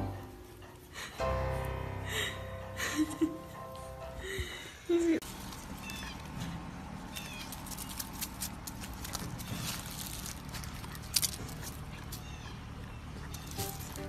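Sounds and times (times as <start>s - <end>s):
rustling dry leaves: 5.0s - 14.0s
paw clicks: 5.4s - 14.0s
puppy squeaking: 5.6s - 14.0s.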